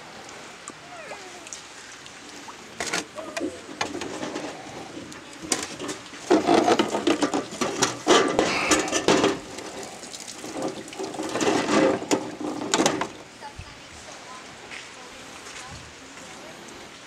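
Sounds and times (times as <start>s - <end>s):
plastic tray clattering: 5.4s - 9.4s.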